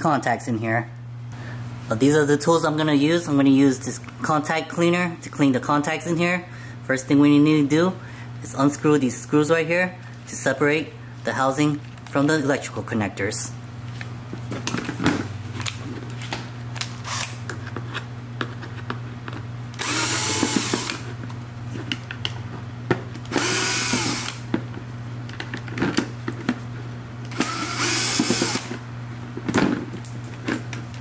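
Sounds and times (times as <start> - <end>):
steady low hum: 0.0 - 31.0
cordless drill motor whirring: 19.8 - 21.1, 23.3 - 24.5, 27.3 - 28.8.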